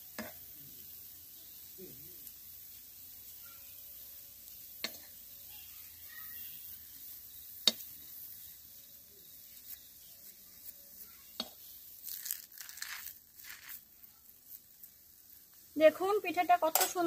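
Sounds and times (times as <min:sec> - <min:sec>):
faint sizzle: 0:00.0 - 0:17.0
spoon clicking against iron pan: 0:04.8 - 0:05.2, 0:07.6 - 0:07.9, 0:11.4 - 0:11.6, 0:16.7 - 0:17.0
soft scraping and rustling: 0:09.6 - 0:14.6.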